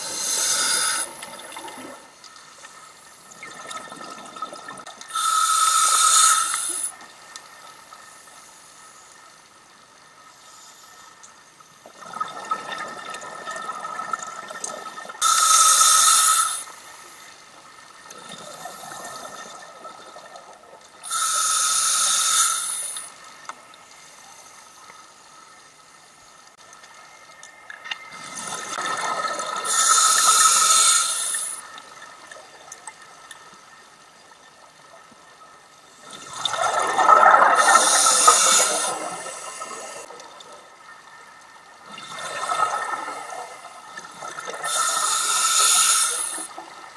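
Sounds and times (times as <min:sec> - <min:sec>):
diver breathing through regulator: 0:00.0 - 0:01.2, 0:05.1 - 0:06.9, 0:21.0 - 0:23.1, 0:29.6 - 0:31.6, 0:37.3 - 0:40.1, 0:44.6 - 0:46.5.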